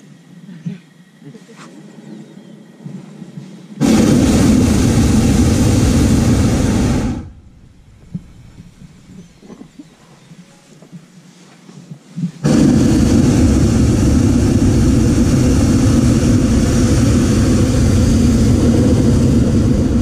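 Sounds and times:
propane burner roaring: 3.8s - 8.2s, 12.4s - 20.0s.

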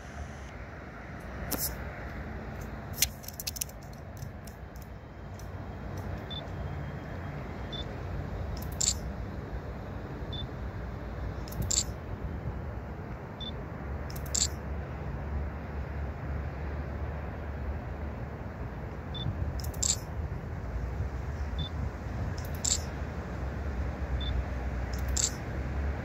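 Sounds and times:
diesel locomotives rumbling: 0.0s - 26.0s
sharp clicks: 2.6s - 6.5s, 8.6s - 9.0s, 11.5s - 11.9s, 14.1s - 14.6s, 19.6s - 20.0s, 22.4s - 22.9s, 24.9s - 25.4s.

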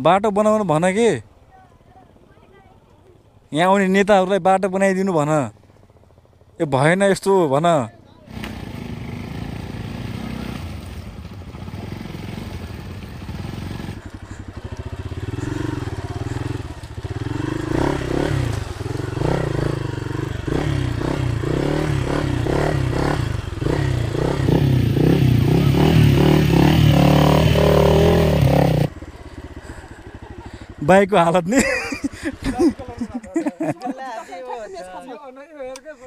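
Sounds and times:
motorcycle engine revving: 8.3s - 33.6s.

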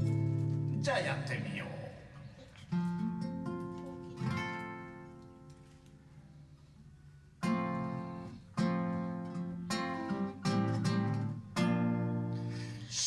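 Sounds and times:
acoustic guitar chords strummed: 0.0s - 1.6s, 2.6s - 5.6s, 7.4s - 13.0s.

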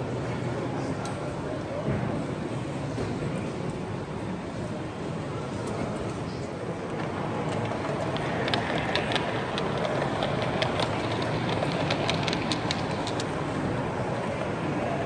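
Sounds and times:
hall background noise: 0.0s - 15.0s
model train wheels clicking: 6.8s - 14.1s.

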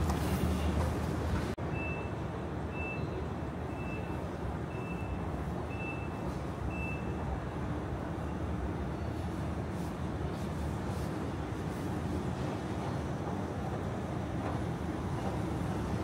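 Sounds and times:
street traffic noise: 0.0s - 16.0s
vehicle reversing alarm beeping: 1.7s - 7.3s.

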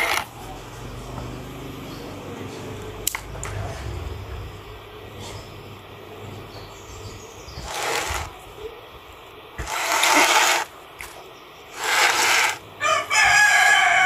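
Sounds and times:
rooster crowing: 12.8s - 14.0s.

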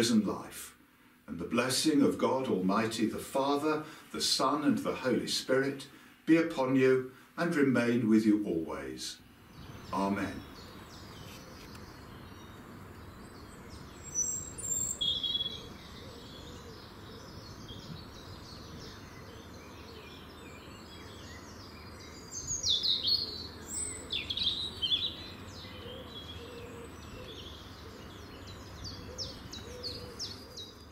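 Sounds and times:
steady background noise: 0.0s - 30.9s
birds singing and chirping: 9.4s - 30.9s.

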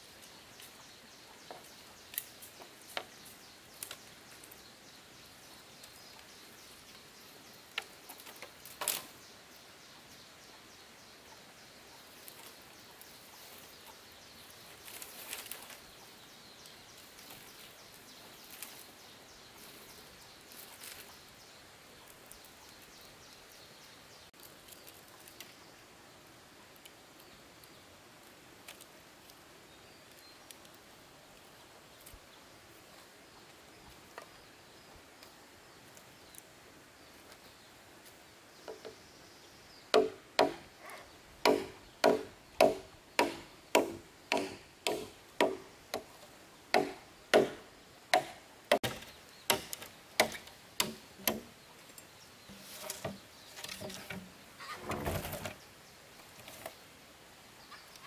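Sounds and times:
rustling and scraping: 14.7s - 15.9s, 51.8s - 56.8s
tool striking wood: 39.9s - 40.6s, 41.4s - 46.1s, 46.7s - 51.5s.

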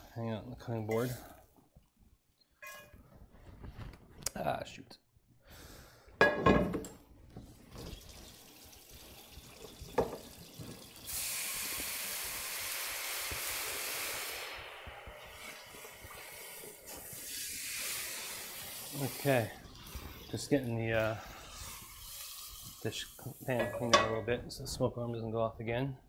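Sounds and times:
water running into sink: 7.6s - 14.4s.

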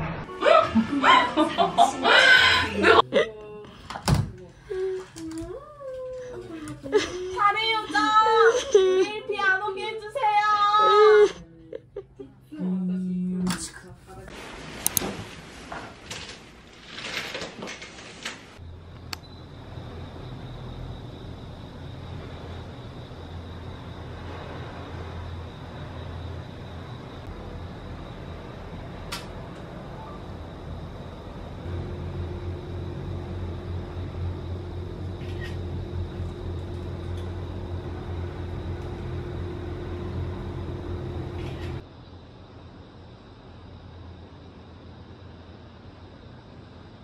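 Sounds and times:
low mechanical hum: 0.4s - 47.0s
steady droning tone: 18.6s - 41.8s.

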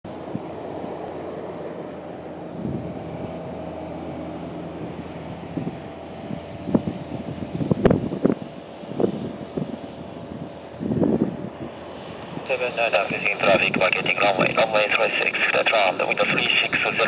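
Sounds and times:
distant jet engines rumbling: 0.1s - 17.0s
wind buffeting microphone: 2.2s - 14.7s.

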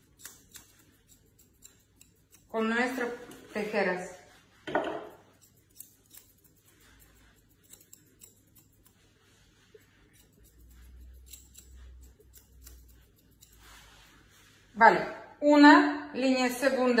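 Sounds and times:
scissors snipping hair: 0.0s - 3.7s, 5.0s - 13.9s.

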